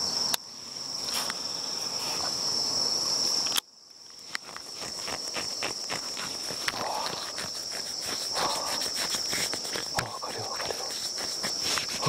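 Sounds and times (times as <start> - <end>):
insects trilling: 0.0 - 12.0
rustles in brush: 4.4 - 12.0.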